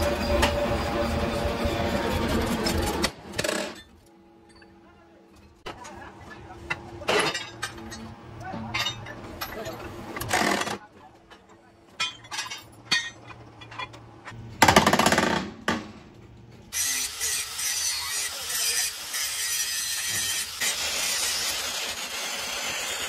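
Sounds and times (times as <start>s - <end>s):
angle grinder cutting steel: 16.7s - 23.0s.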